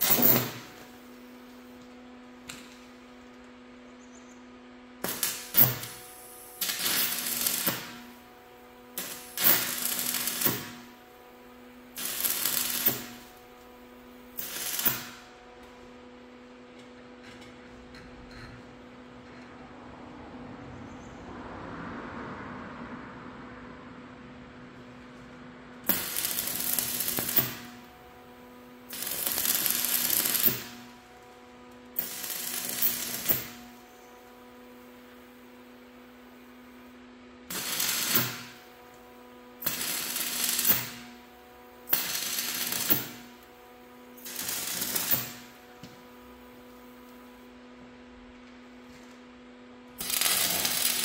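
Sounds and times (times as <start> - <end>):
jointer cutting wood: 29.0 - 31.0, 31.7 - 33.7.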